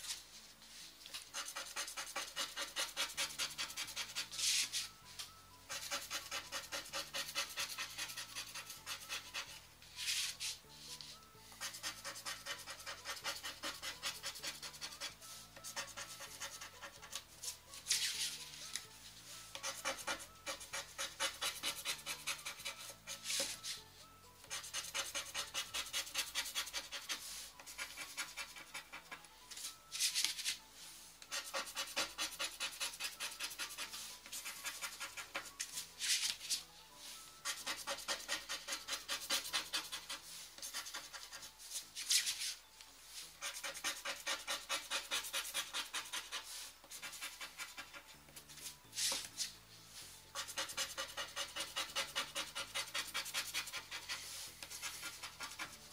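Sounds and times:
scratch card being scratched: 1.1s - 5.0s, 5.7s - 18.8s, 19.4s - 23.8s, 24.5s - 29.2s, 31.2s - 36.6s, 37.4s - 42.6s, 43.3s - 49.6s, 50.3s - 55.9s.

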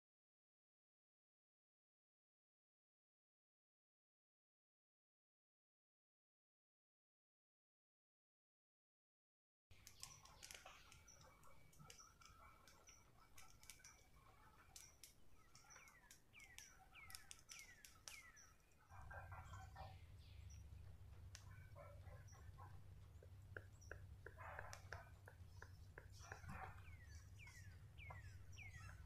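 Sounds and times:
scattered clicks: 9.7s - 19.6s, 20.2s - 29.0s
birds calling: 9.7s - 29.0s
low steady hum: 9.7s - 29.0s.

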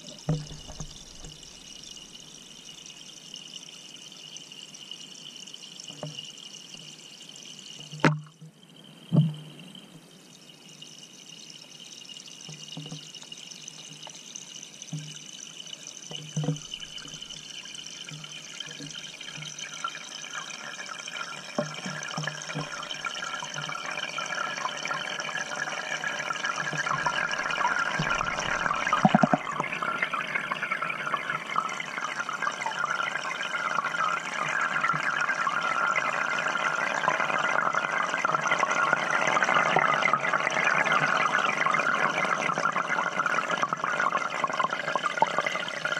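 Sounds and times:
water rushing underwater: 0.0s - 2.8s, 16.0s - 45.9s.

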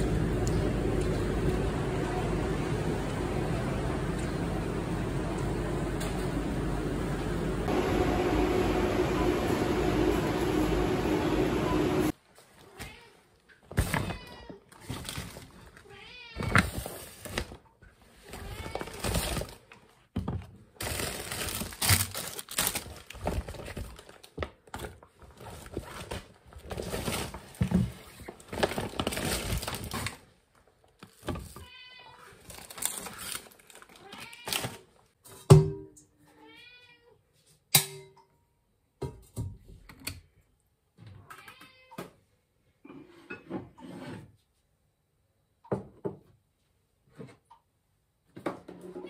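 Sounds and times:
food packaging rustling: 20.6s - 31.6s, 32.2s - 35.1s.

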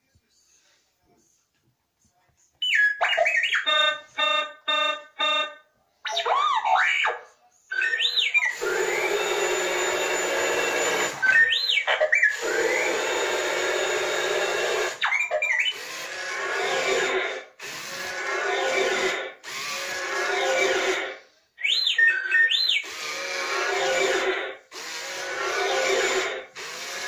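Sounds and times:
toy robot motors whirring: 7.8s - 27.0s.

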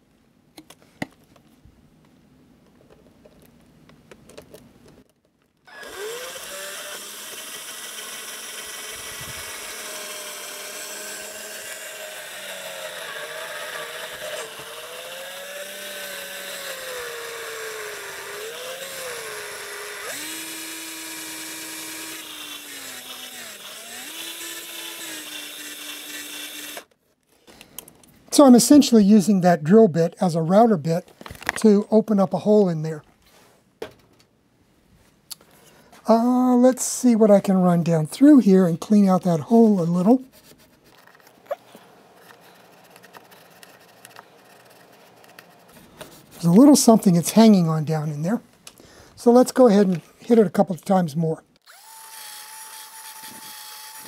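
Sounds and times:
cordless drill motor whine: 5.7s - 26.9s, 51.6s - 54.0s.

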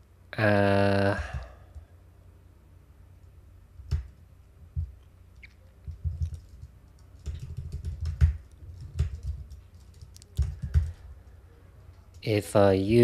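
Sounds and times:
keyboard keystrokes: 4.8s - 11.1s.

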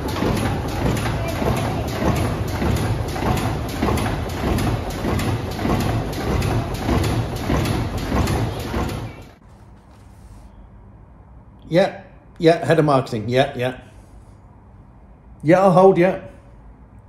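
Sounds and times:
steam engine clanking: 0.0s - 9.4s.

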